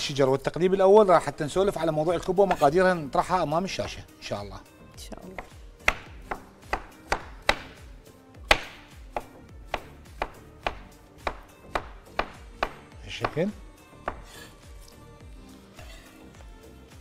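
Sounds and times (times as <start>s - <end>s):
knife chopping on cutting board: 3.8s - 4.0s, 5.3s - 7.9s, 8.5s - 14.4s.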